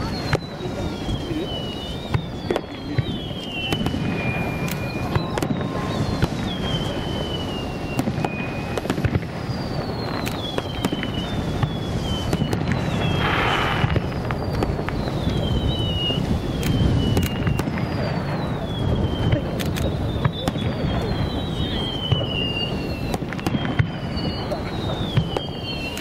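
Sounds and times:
fireworks bangs: 0.0s - 26.0s
fireworks crackling: 0.0s - 26.0s
fireworks whistles dropping in pitch: 0.0s - 26.0s.

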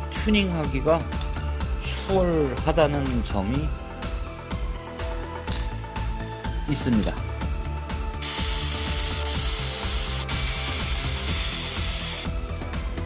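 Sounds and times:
background music: 0.0s - 13.0s
cordless drill running: 8.2s - 12.3s.

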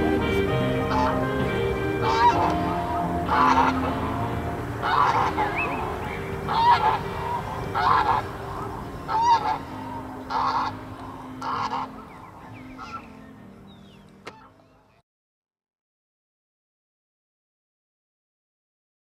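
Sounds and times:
geese honking: 0.0s - 15.0s.

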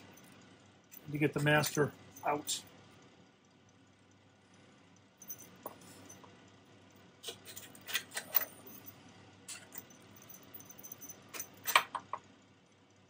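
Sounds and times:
small metal parts clinking: 5.2s - 6.3s, 7.2s - 12.2s.

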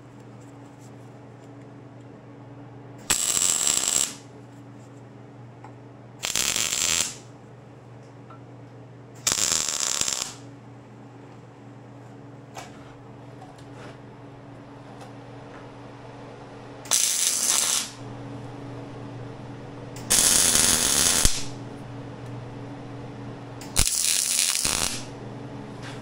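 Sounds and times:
steady low hum: 0.0s - 26.0s
mig welder bursts: 3.0s - 4.2s, 6.2s - 7.2s, 9.2s - 10.4s, 16.9s - 18.0s, 20.0s - 21.6s, 23.6s - 25.1s.

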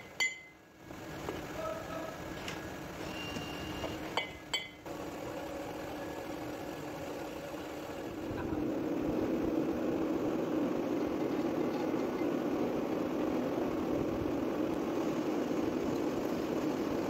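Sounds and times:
lathe humming: 4.9s - 17.0s.

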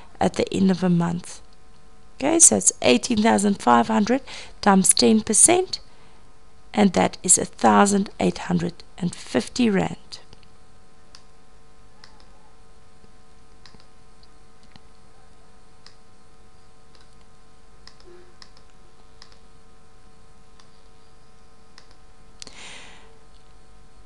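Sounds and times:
steady background hum: 0.0s - 24.0s
computer mouse clicking: 12.0s - 12.4s, 13.6s - 14.8s, 16.9s - 19.4s, 20.6s - 20.9s, 21.8s - 22.0s.

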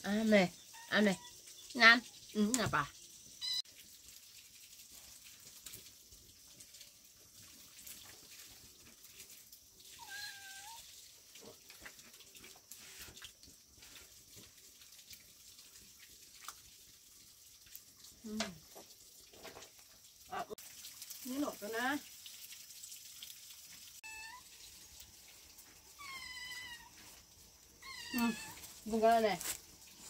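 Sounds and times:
high-pitched animal call: 10.0s - 10.8s, 24.0s - 24.5s, 25.9s - 27.2s, 27.8s - 28.7s.

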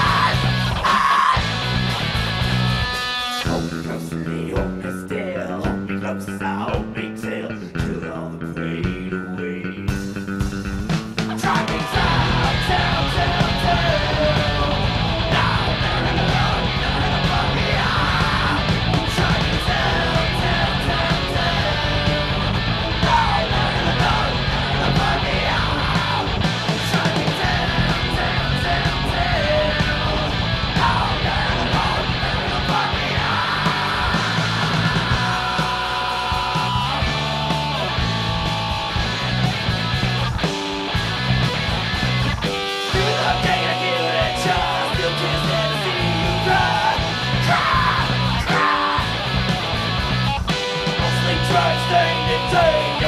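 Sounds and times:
man singing: 0.0s - 1.5s, 3.4s - 10.0s, 11.2s - 22.4s, 23.0s - 38.7s, 42.9s - 49.3s, 51.0s - 53.0s
shouted vocals: 0.0s - 1.7s, 11.3s - 39.0s, 42.9s - 49.8s, 51.0s - 53.0s
live hard rock band playing: 0.0s - 5.0s, 9.9s - 53.0s.

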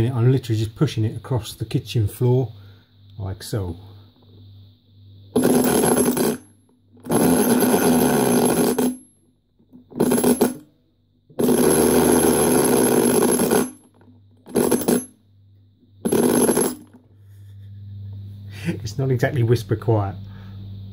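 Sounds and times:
gears whirring and rattling: 5.4s - 9.0s.

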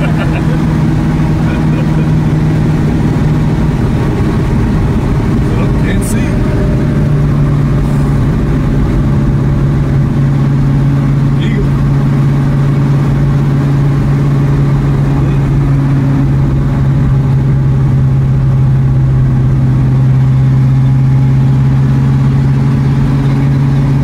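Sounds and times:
car engine and exhaust droning: 0.0s - 24.0s.

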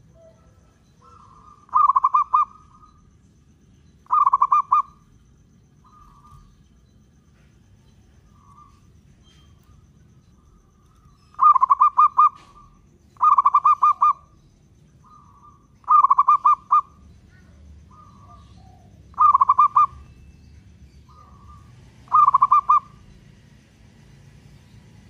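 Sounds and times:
dove cooing: 0.0s - 3.1s, 4.0s - 5.1s, 5.8s - 6.6s, 7.4s - 14.4s, 15.0s - 20.2s, 21.0s - 23.1s.

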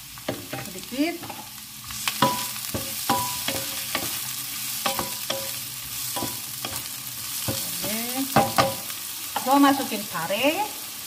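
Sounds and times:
vegetables sizzling in wok: 0.0s - 11.0s
spatula knocking against pan: 6.2s - 8.8s.

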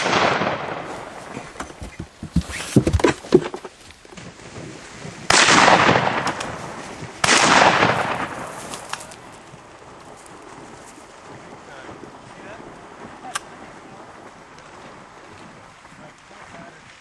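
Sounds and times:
shotgun blasts with echo: 0.0s - 1.4s, 5.2s - 9.1s.

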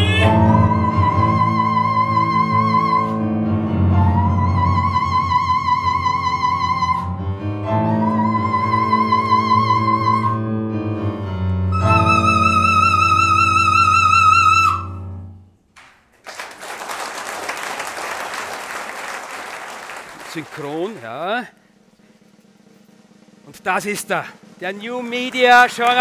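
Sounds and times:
operatic soprano singing: 0.0s - 3.4s, 4.0s - 7.2s, 7.8s - 10.4s
piano accompaniment: 0.0s - 15.9s
audience applause: 15.8s - 21.4s, 25.0s - 26.0s.

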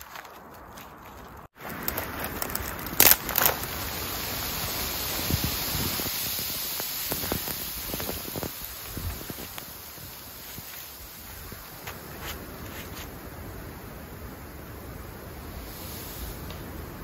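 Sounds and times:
branches crunching and knocking: 0.0s - 3.8s
dry branches snapping: 0.0s - 3.8s
wind-driven snow hissing: 1.6s - 17.0s.

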